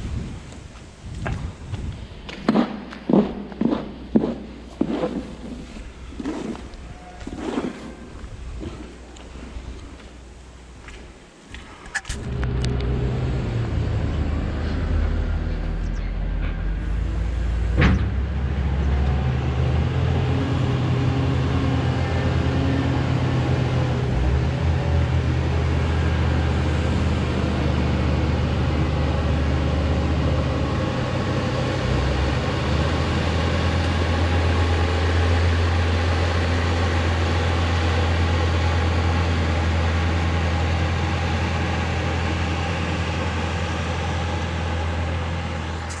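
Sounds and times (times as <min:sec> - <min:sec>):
heavy diesel engine droning: 0:12.2 - 0:46.0.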